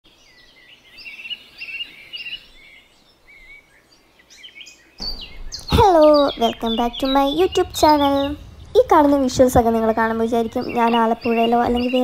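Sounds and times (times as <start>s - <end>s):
birds chirping: 0.1s - 12.0s
loud full sound: 5.0s - 12.0s.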